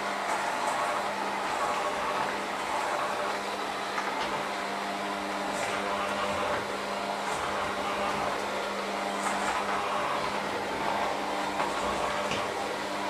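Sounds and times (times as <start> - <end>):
electric hand mixer running: 0.0 - 13.0.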